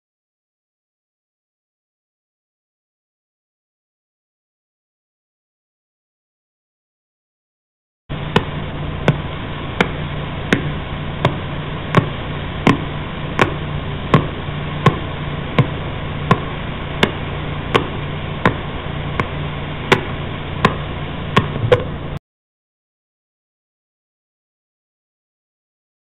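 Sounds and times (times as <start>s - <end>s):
low hum: 8.1s - 22.2s
static hiss: 8.1s - 22.2s.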